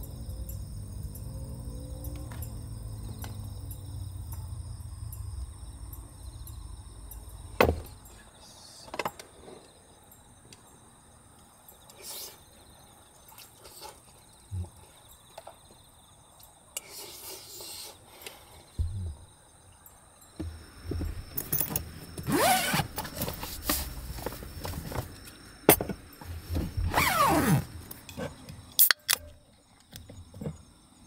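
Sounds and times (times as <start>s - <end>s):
crickets chirping: 0.0s - 31.0s
low hum: 18.8s - 19.4s.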